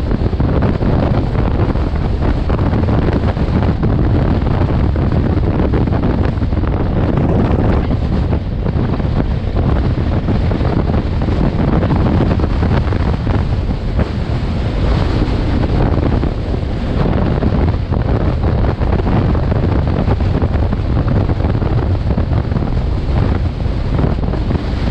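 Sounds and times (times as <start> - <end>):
wind buffeting microphone: 0.0 - 24.9.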